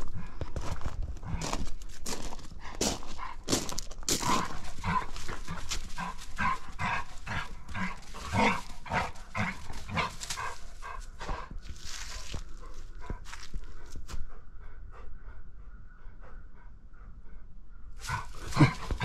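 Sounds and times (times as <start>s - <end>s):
scuffling in dry leaves: 3.0s - 11.1s, 11.7s - 13.6s.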